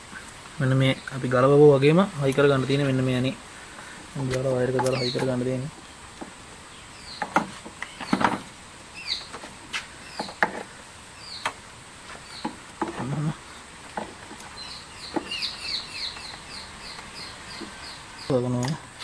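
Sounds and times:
small bird chirping: 0:04.3 - 0:10.4, 0:11.1 - 0:19.0.

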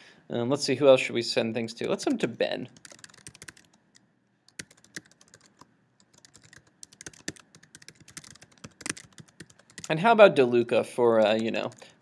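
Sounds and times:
keyboard typing: 0:02.8 - 0:09.9, 0:11.2 - 0:12.0.

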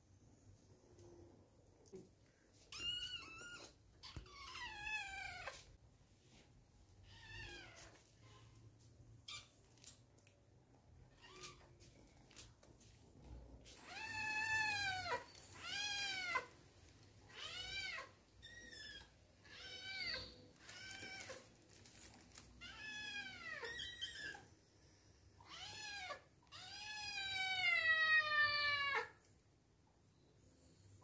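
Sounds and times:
kittens meowing: 0:17.3 - 0:21.5.

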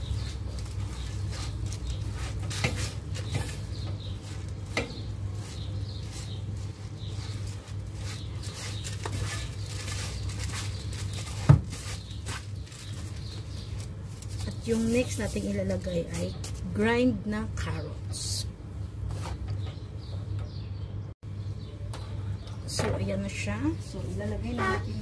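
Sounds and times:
wet rice grains rustling: 0:00.0 - 0:15.8.

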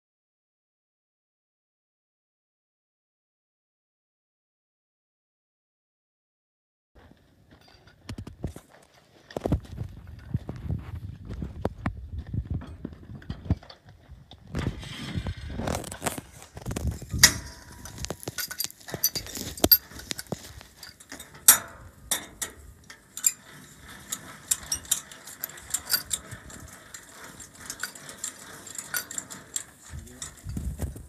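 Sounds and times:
metallic clicks and clinks: 0:16.0 - 0:30.8.

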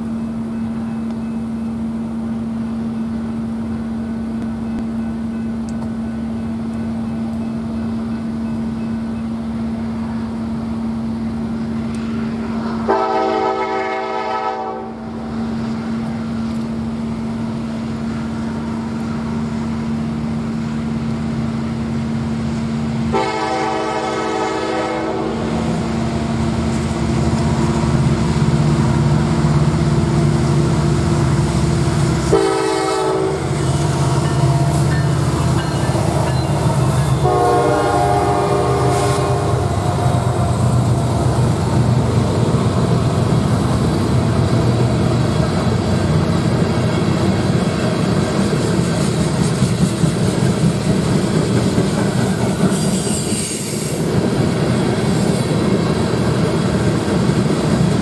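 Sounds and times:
train engines rumbling: 0:00.0 - 0:58.0
train horn blasts: 0:12.5 - 0:15.2, 0:23.1 - 0:25.7, 0:32.2 - 0:35.2, 0:36.0 - 0:40.6.

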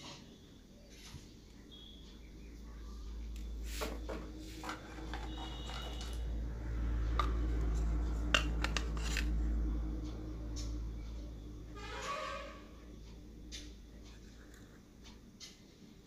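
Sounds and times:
steady low hum: 0:00.0 - 0:16.0
small hard objects clattering: 0:03.7 - 0:06.2, 0:08.3 - 0:09.3.

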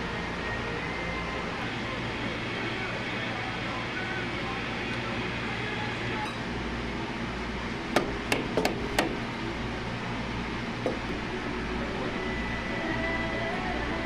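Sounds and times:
steady low hum: 0:00.0 - 0:14.0
metal clamps knocking on machine table: 0:07.9 - 0:09.2, 0:10.8 - 0:11.3.

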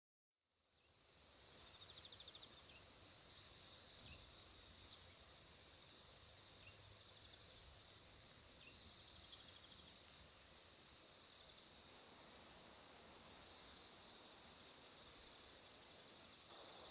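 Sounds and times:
soft steady hiss: 0:00.4 - 0:16.9.

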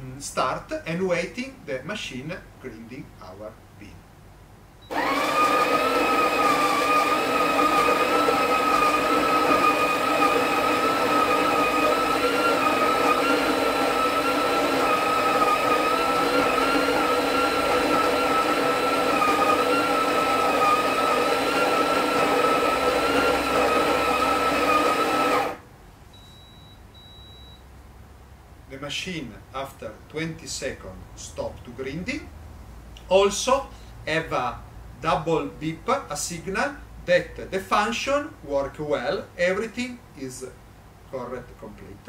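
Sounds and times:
coffee grinder whining: 0:04.9 - 0:25.6
short high beep: 0:26.2 - 0:27.6.

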